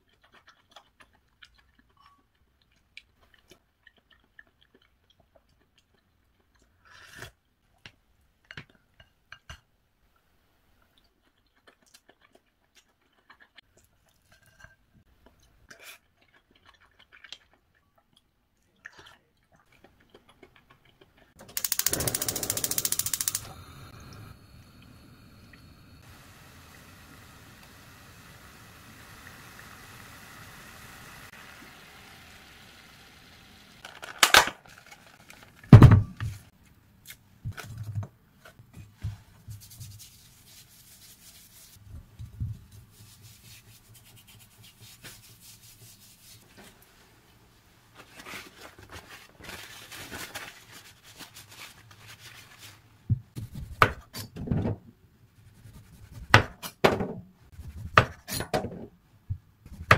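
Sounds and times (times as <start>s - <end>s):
limes rubbed by hand: 39.5s - 41.8s, 42.8s - 46.6s.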